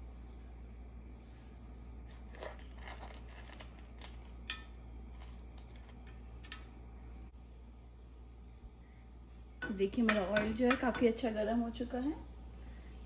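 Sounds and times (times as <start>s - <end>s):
steady low hum: 0.0s - 13.0s
spices crackling in hot oil: 2.0s - 6.8s.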